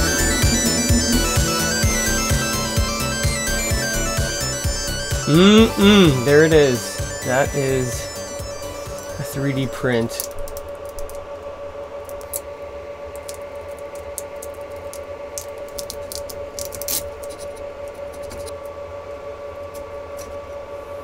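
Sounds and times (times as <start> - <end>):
steady hum: 0.0 - 15.4.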